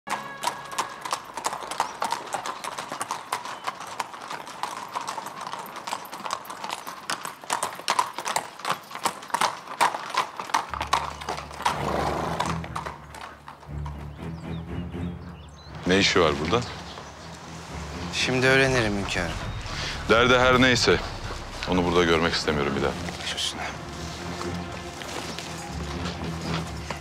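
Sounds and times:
background music: 0.1 - 2.1, 10.6 - 27.0
horse hooves clip-clopping: 0.1 - 27.0.

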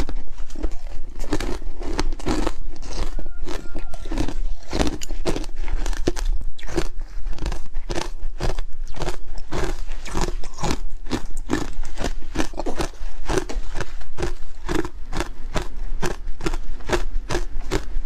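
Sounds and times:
ice crunching between teeth: 0.0 - 18.0.

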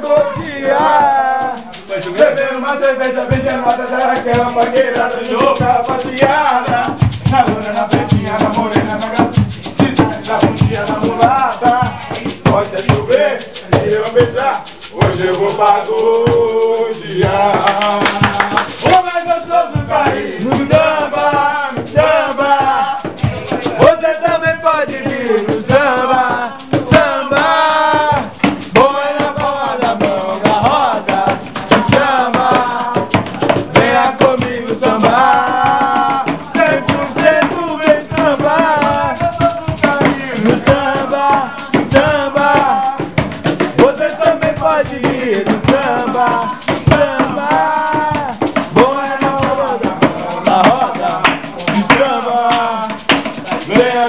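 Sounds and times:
group singing samba: 0.0 - 54.0
hand percussion: 0.0 - 54.0.

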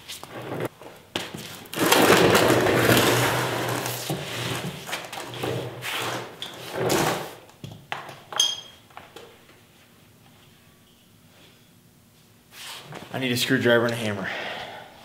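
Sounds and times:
creeper rolling over concrete: 0.1 - 8.1.

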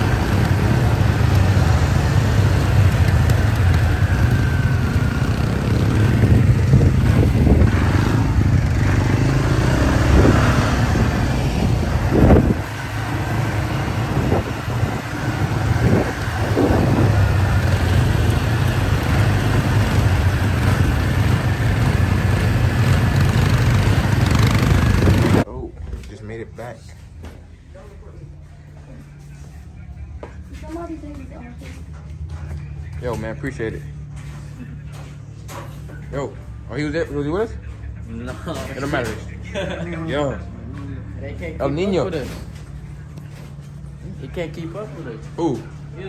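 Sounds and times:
atv engines running: 0.0 - 25.5, 28.6 - 46.0
wind rumbling on microphone: 6.0 - 8.6, 10.0 - 12.7, 14.0 - 17.6.

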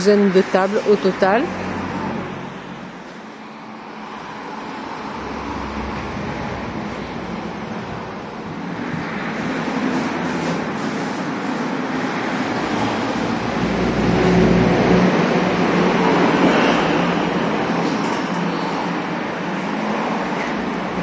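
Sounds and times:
vehicle passing rumble: 0.0 - 11.2
road traffic noise: 0.0 - 21.0.

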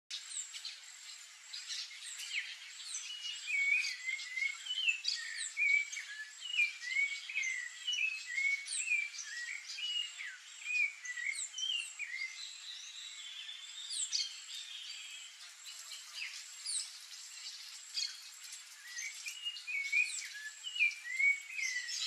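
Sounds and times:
birds chirping: 0.1 - 22.0.

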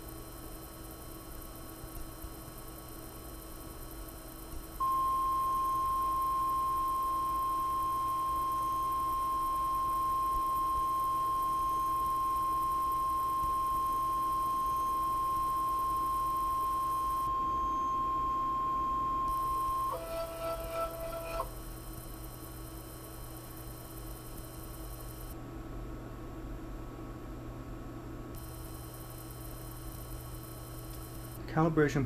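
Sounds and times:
stepper motor whining: 4.8 - 22.2.

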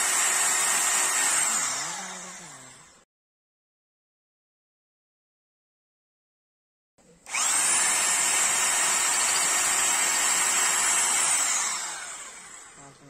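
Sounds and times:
hammer drill boring into rock: 7.3 - 12.8.

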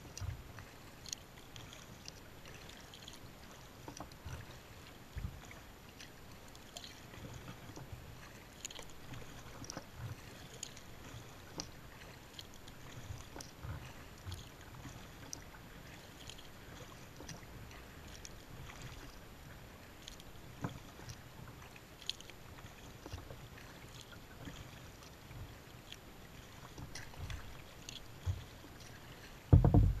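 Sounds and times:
small drips and ticks: 0.0 - 30.0
water lapping against kayak hull: 0.0 - 30.0
loud knock: 29.5 - 30.0
soft low thuds: 29.5 - 30.0.

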